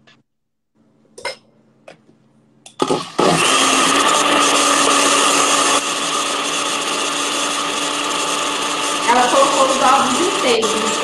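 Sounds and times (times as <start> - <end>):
blender running: 2.7 - 11.0.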